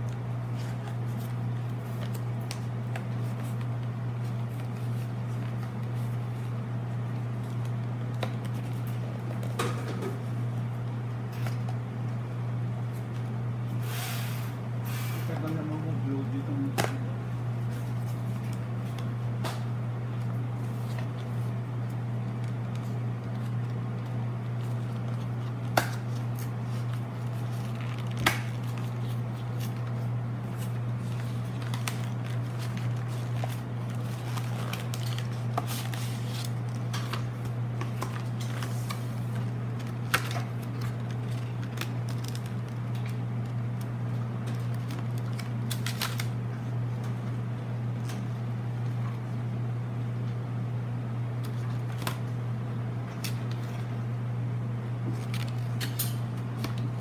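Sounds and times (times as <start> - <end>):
steady low hum: 0.0 - 57.0
packaging being opened by hand: 20.6 - 46.4, 51.4 - 52.3, 55.0 - 57.0.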